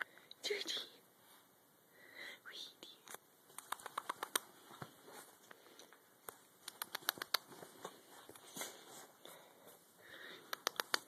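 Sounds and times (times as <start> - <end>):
puppy claws clicking and tapping: 3.1 - 4.6, 6.2 - 7.9, 10.4 - 11.0
bedding rustling: 4.4 - 10.0.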